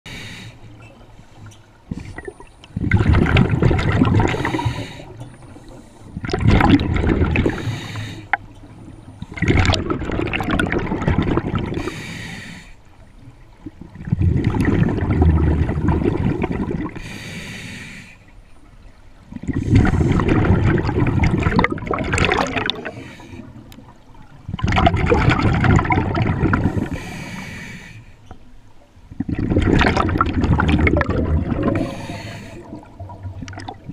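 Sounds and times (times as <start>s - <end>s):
regulator inhale hiss: 0.1s - 2.1s, 4.2s - 6.2s, 7.5s - 8.4s, 11.8s - 12.8s, 17.0s - 18.3s, 22.8s - 23.6s, 26.7s - 28.2s, 31.8s - 32.9s
exhaled bubbles rushing underwater: 1.7s - 12.1s, 13.0s - 17.1s, 18.7s - 27.4s, 29.0s - 33.9s.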